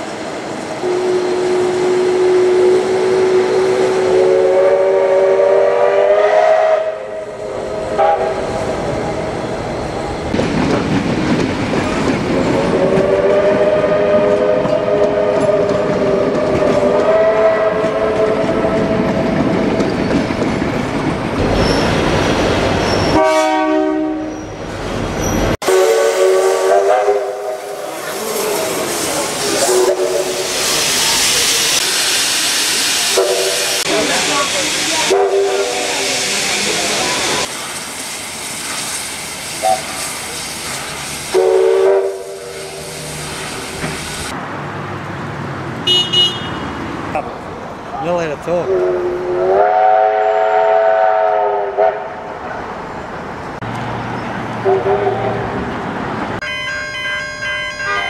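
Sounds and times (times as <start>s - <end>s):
running train noise: 0.0s - 58.0s
single-note train horn: 0.8s - 7.4s, 23.1s - 24.4s, 25.6s - 27.6s, 41.3s - 42.5s, 48.7s - 52.1s, 54.6s - 55.4s
steam locomotive chime whistle: 0.8s - 8.4s, 22.9s - 24.6s, 25.6s - 27.7s, 41.3s - 42.9s, 48.7s - 52.0s, 56.4s - 58.0s
steam hissing: 25.7s - 44.4s.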